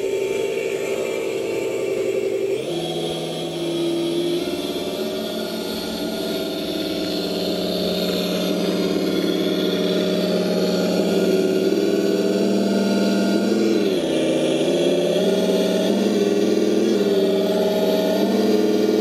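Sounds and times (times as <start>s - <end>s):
simulated engine from speaker: 0.0s - 19.0s.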